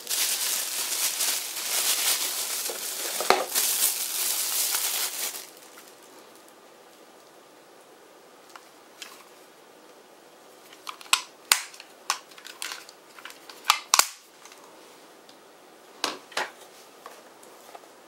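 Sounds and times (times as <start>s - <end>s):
plastic clicks and snaps: 10.8s - 14.6s.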